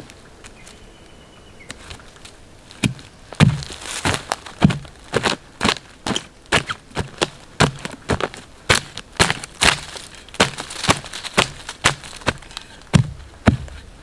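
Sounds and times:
hatchet chopping wood: 0:02.8 - 0:04.9, 0:06.5 - 0:13.8.

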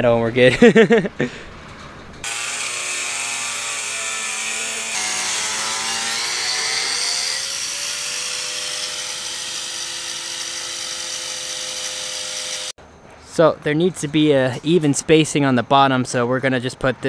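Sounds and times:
angle grinder grinding metal: 0:02.2 - 0:12.7.

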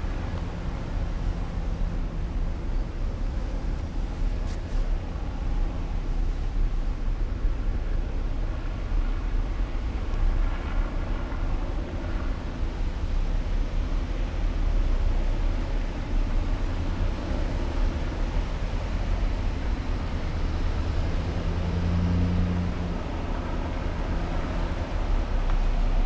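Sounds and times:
vehicle engine hum: 0:00.0 - 0:26.0
vehicles driving past: 0:00.0 - 0:26.0.

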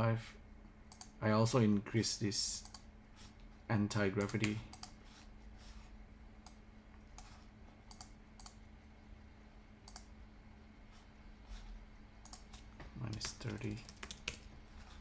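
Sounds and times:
faint low hum: 0:00.0 - 0:15.0
keyboard and mouse clicks: 0:04.2 - 0:05.0, 0:07.2 - 0:08.6, 0:09.8 - 0:10.1, 0:12.2 - 0:14.5.

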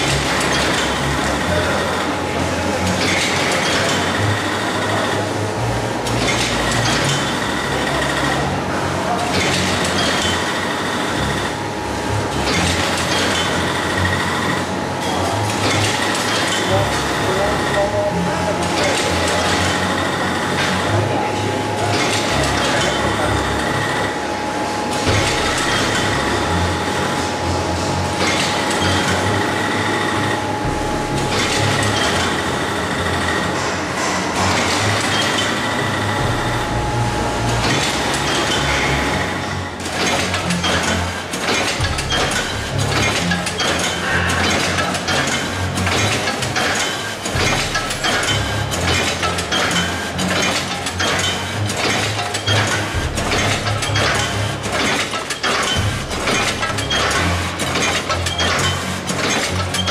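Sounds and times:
machine whine: 0:00.0 - 0:59.9
packaging machine clattering: 0:37.6 - 0:59.9.

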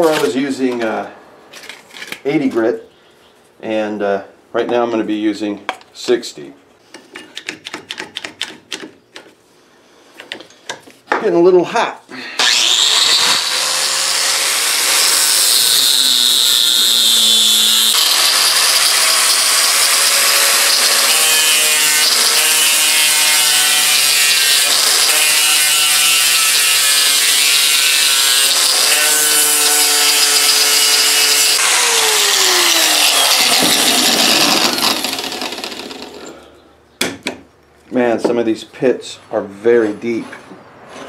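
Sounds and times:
angle grinder grinding metal: 0:12.3 - 0:36.5.

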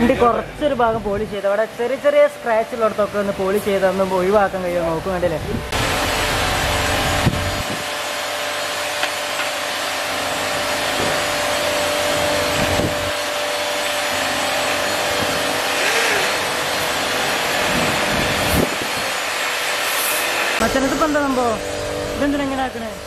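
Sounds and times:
car polisher motor whine: 0:05.5 - 0:23.0.

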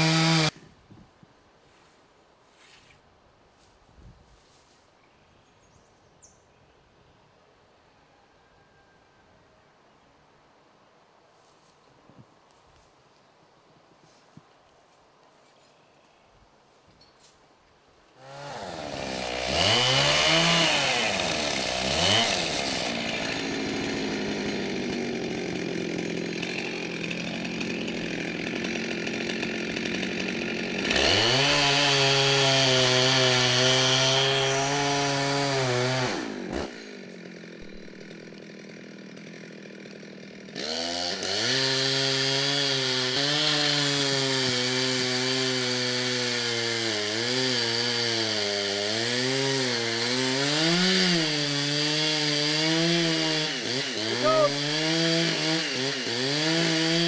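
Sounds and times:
chainsaw revving and cutting: 0:00.0 - 0:00.6, 0:18.2 - 0:57.0.

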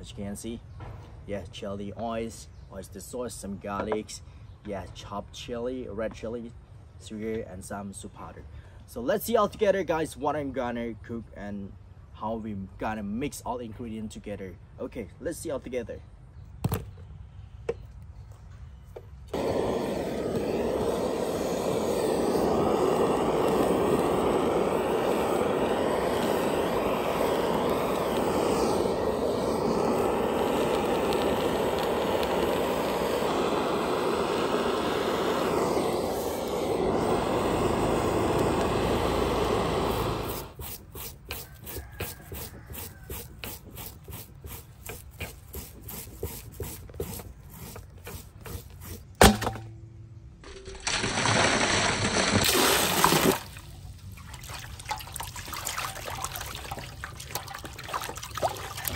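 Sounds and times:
blowtorch flame burning: 0:19.3 - 0:49.2, 0:55.3 - 0:58.9
short strokes: 0:19.3 - 0:49.2
sharp knock: 0:49.2 - 0:49.8
water pouring into metal basin: 0:50.5 - 0:53.6, 0:54.2 - 0:58.9.

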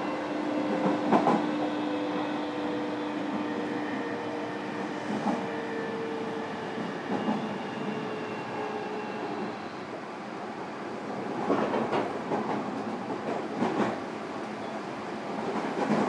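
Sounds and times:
train wheels rumbling on rail: 0:00.0 - 0:16.0.

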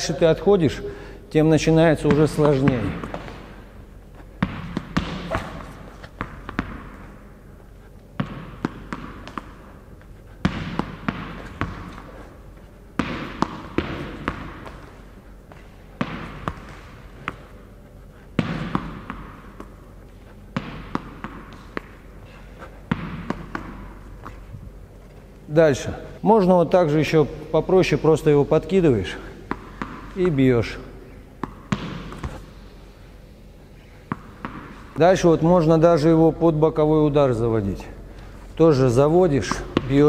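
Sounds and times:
tennis ball punched and caught: 0:04.4 - 0:07.3, 0:08.2 - 0:09.8, 0:10.4 - 0:12.2, 0:12.9 - 0:17.6, 0:18.3 - 0:19.9, 0:20.5 - 0:24.5, 0:29.4 - 0:30.3, 0:31.3 - 0:32.5, 0:34.0 - 0:35.0.

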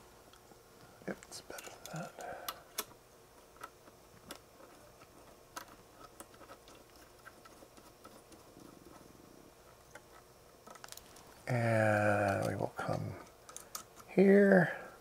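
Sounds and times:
small metal connectors clicking: 0:01.2 - 0:03.0, 0:03.6 - 0:09.0, 0:09.9 - 0:11.3, 0:12.2 - 0:14.1.

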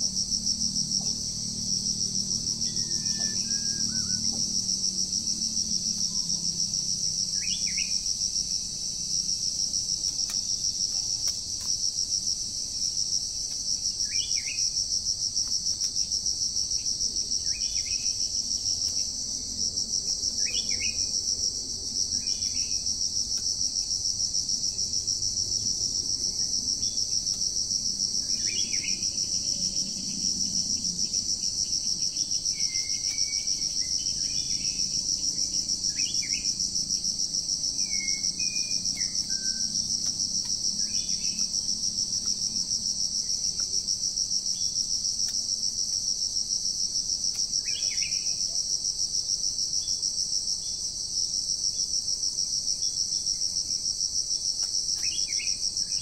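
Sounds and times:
high-pitched insect drone: 0:00.0 - 0:11.3, 0:25.2 - 0:44.9.

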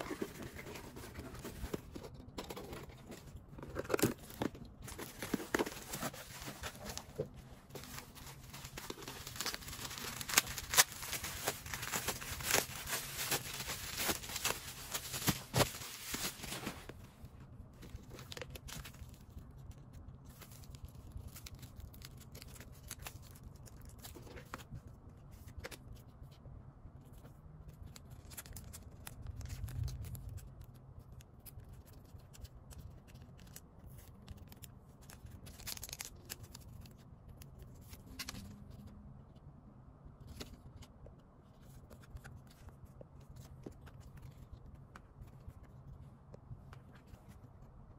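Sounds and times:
bubble-wrap mailer crinkling: 0:00.0 - 0:17.0, 0:31.7 - 0:37.0.

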